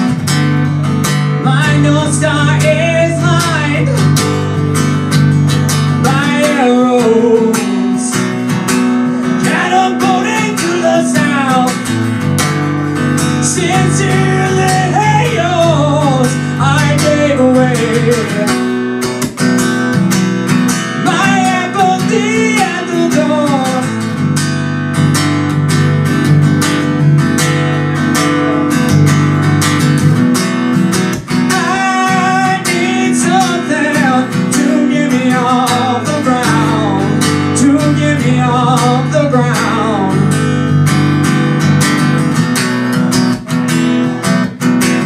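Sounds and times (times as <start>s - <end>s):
man singing: 0.0s - 12.2s, 12.9s - 19.3s, 20.6s - 24.2s, 31.3s - 40.8s
acoustic guitar strummed and picked: 0.0s - 45.0s.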